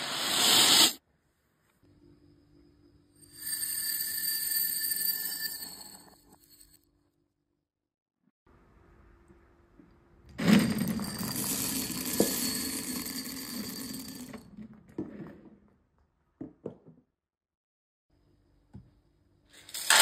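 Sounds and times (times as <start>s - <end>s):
beads clattering into glass: 3.2s - 6.8s, 10.4s - 14.6s.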